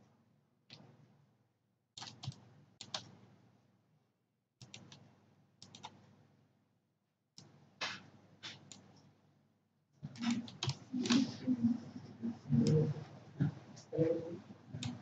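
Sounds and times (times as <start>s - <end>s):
computer mouse clicks: 2.0s - 3.2s, 4.6s - 5.0s, 5.6s - 6.1s, 8.4s - 9.1s, 10.1s - 11.3s, 14.8s - 15.0s.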